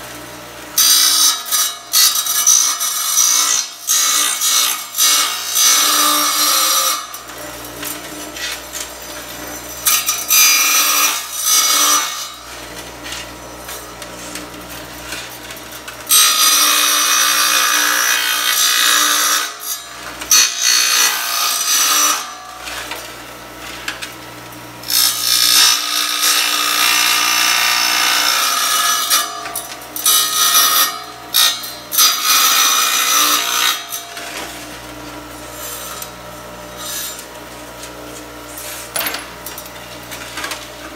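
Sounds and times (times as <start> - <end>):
tile saw blade grinding into tile: 0.8 - 23.0, 24.8 - 37.9, 38.5 - 40.9.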